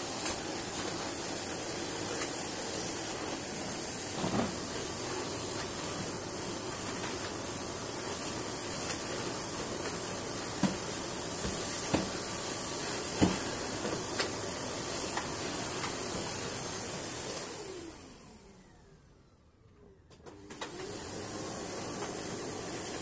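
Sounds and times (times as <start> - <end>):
vacuum cleaner running: 0.0 - 23.0
vacuum hose knocking: 8.8 - 14.4.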